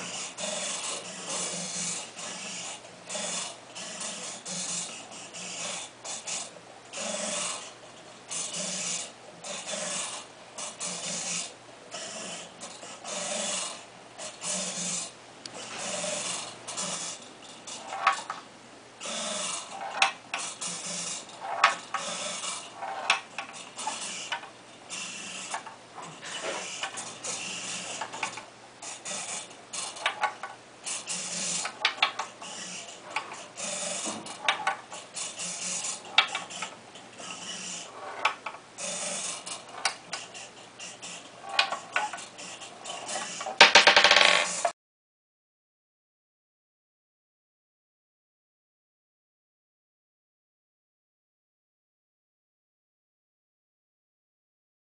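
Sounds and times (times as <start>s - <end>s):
small electric motors whirring: 0.0s - 7.7s, 8.3s - 18.3s, 19.0s - 43.6s
metal ball rolling and knocking on wood: 42.8s - 44.7s.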